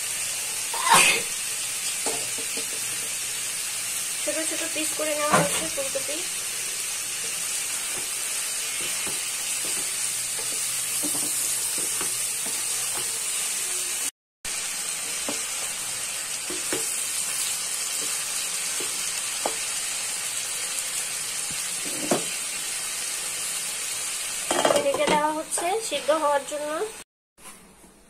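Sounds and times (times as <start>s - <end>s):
food sizzling in oil: 0.0s - 27.0s.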